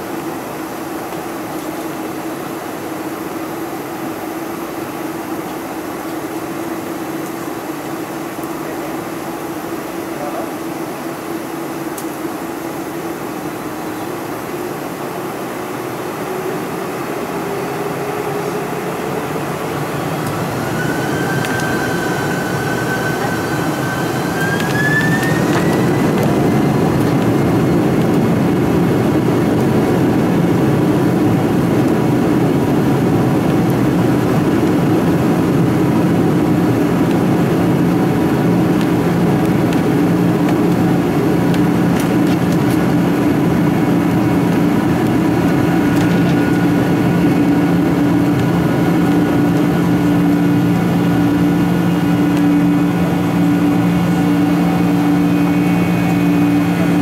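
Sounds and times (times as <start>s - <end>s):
jet engines spooling up: 12.0s - 57.0s.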